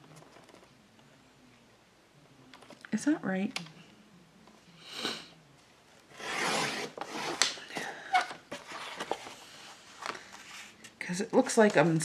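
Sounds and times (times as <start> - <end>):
paper rubbing and sliding: 6.1 - 7.5.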